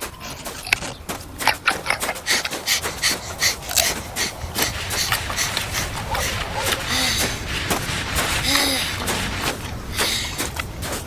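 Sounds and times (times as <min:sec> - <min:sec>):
panda crunching carrot: 0:00.0 - 0:11.0.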